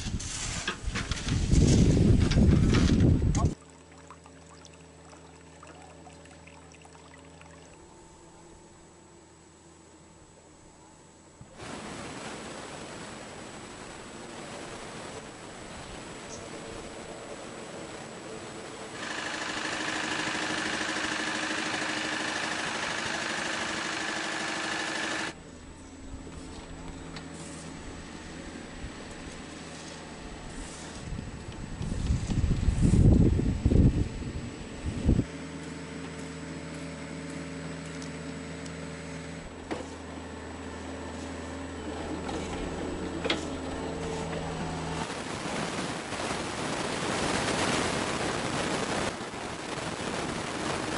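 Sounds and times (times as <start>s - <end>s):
windy hiss: 11.4s - 25.3s, 44.2s - 50.9s
motor whining and humming: 16.4s - 45.1s
excavator diesel engine running: 16.7s - 25.4s, 35.3s - 45.1s.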